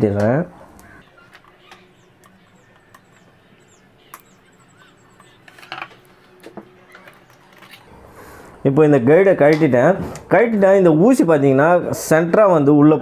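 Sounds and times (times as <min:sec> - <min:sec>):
faint bird chirps: 0:00.5 - 0:08.7.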